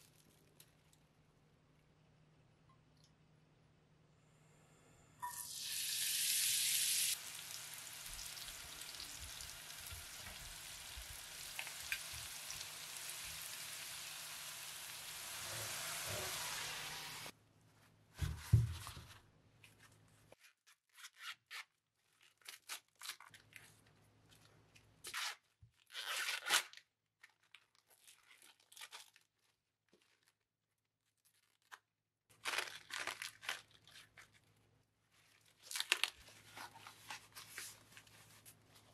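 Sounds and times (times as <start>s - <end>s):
scallions sizzling in hot oil: 5.3s - 17.3s
corn husks rustling and tearing: 26.2s - 38.9s.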